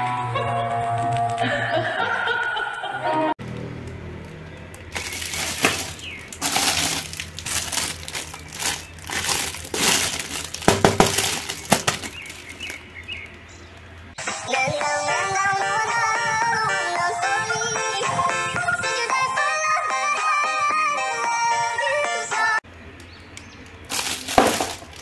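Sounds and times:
plastic bags crinkling: 4.2s - 13.4s, 23.9s - 25.0s.

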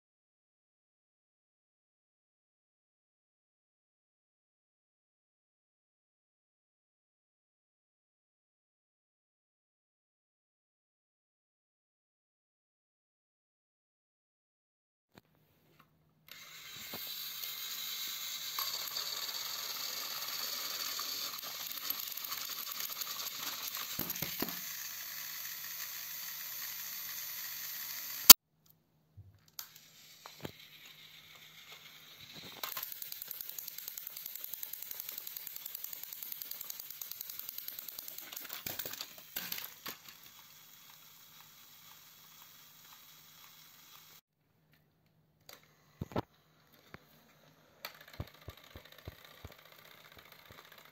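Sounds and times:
toy train motor whirring: 16.3s - 28.4s, 29.5s - 44.2s, 45.5s - 50.9s.

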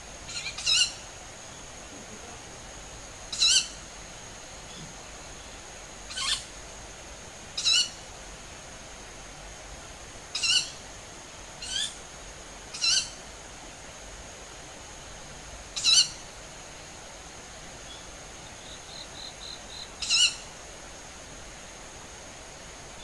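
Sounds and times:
shrill bird calls: 0.3s - 1.0s, 3.3s - 3.8s, 6.1s - 6.5s, 7.6s - 8.0s, 10.4s - 10.8s, 11.6s - 12.0s, 12.7s - 13.2s, 15.8s - 16.2s, 20.0s - 20.5s.

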